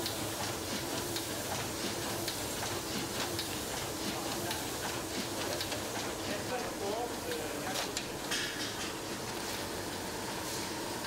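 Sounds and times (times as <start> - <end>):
packaging machinery hiss: 10.3 - 11.0.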